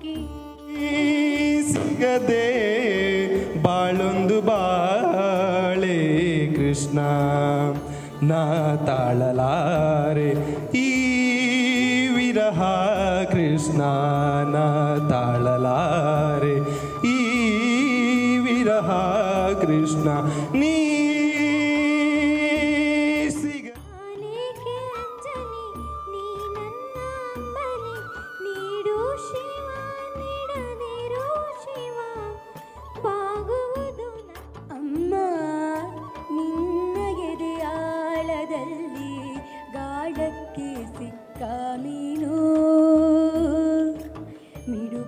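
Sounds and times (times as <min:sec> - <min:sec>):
man singing: 0:00.6 - 0:23.9, 0:44.7 - 0:45.0.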